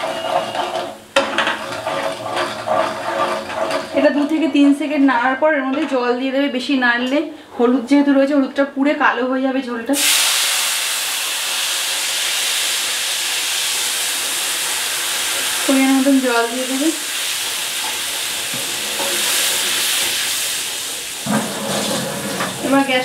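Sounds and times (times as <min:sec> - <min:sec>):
oil and spices sizzling: 0:00.0 - 0:05.3, 0:10.0 - 0:23.0
water poured into pan: 0:10.0 - 0:15.6.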